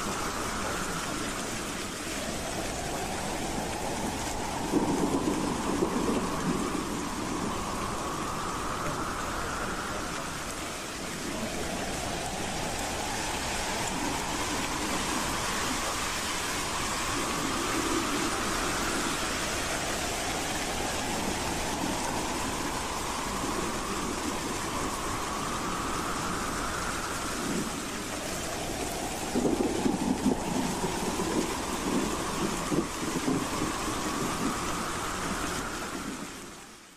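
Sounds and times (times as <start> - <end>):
howling wind: 0.0 - 36.9.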